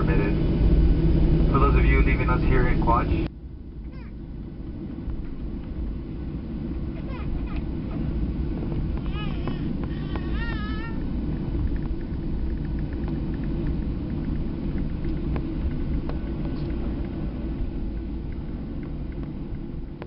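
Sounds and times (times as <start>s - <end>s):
jet engines rumbling inside cabin: 0.0s - 20.0s
faint clicks and rattles: 8.7s - 20.0s.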